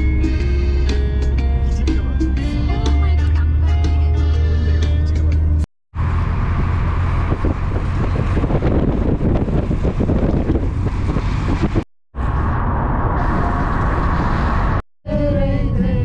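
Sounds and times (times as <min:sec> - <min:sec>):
car road and engine noise: 0:00.0 - 0:16.0
wind buffeting microphone: 0:06.5 - 0:16.0.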